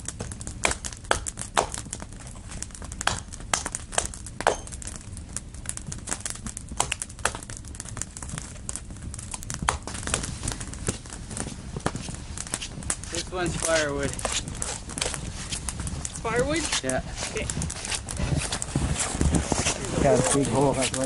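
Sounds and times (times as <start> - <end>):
footsteps crunching in snow: 10.0 - 21.0.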